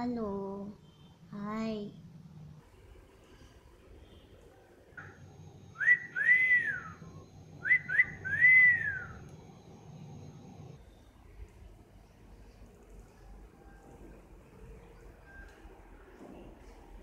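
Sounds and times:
girl whistling: 5.7 - 9.2.

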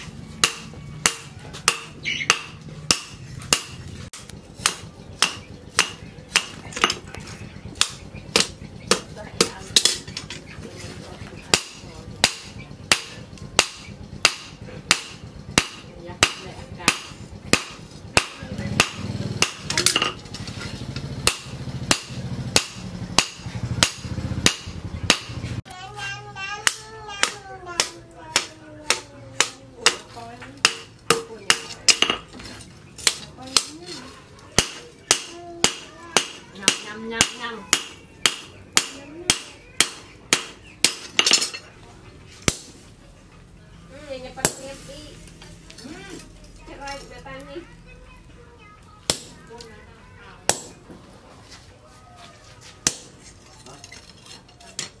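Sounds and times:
hammer striking hot metal on anvil: 0.4 - 3.9, 4.6 - 7.0, 11.5 - 20.2, 21.2 - 25.4, 30.6 - 32.2, 34.6 - 41.5, 42.4 - 42.9, 52.8 - 53.1.

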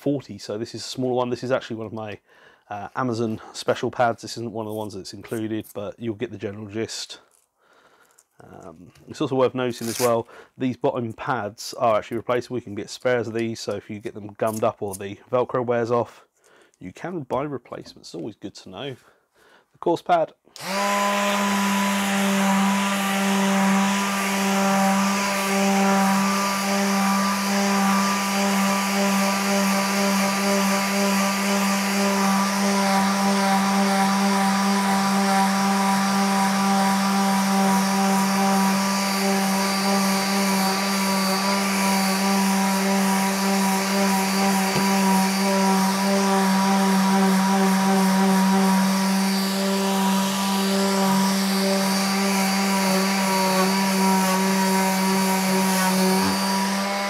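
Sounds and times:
electric sander sanding wood: 20.6 - 57.0.

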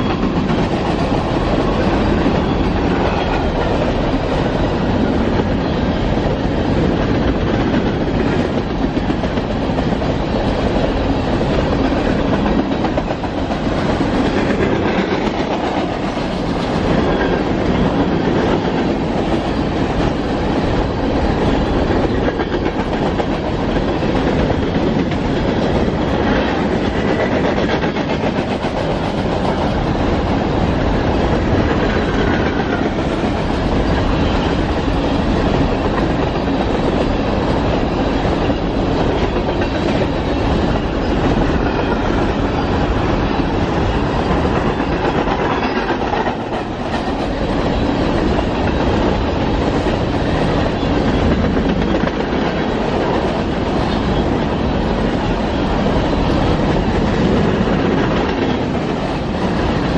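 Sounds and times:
train wheels on rails: 0.0 - 59.9.

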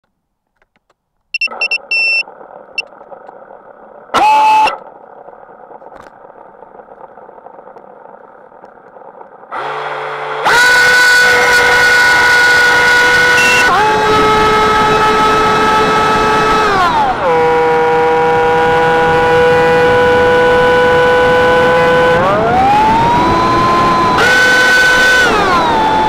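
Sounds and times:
short high beeps: 1.3 - 2.2, 13.4 - 13.7
quadcopter motors humming and whining: 4.2 - 4.8, 9.5 - 26.0.

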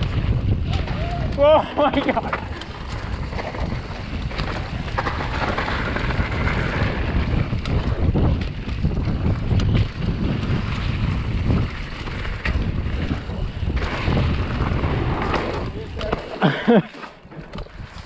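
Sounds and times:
bike clicks and rattles: 0.0 - 18.0
tyres rolling over gravel: 0.0 - 18.0
wind buffeting microphone: 0.0 - 18.0.

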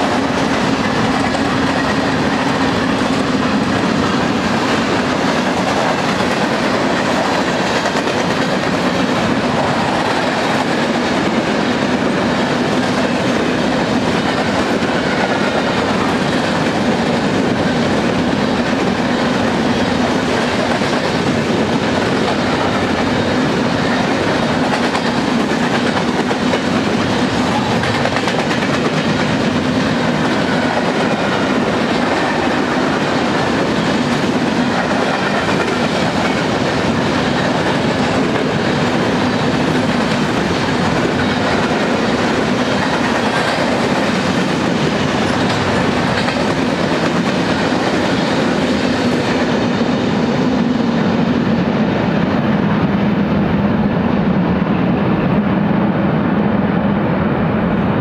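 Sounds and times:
freight train rolling past: 0.0 - 58.0.

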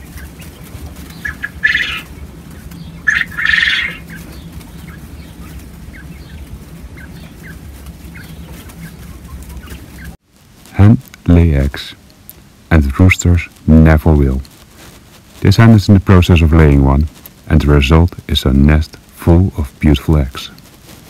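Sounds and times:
quail crowing: 0.0 - 10.2
steady low hum: 0.0 - 21.0.

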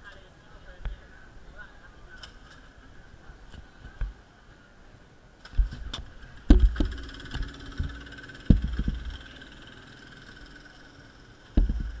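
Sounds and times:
muffled camera handling thumps: 5.5 - 9.2, 11.6 - 12.0.

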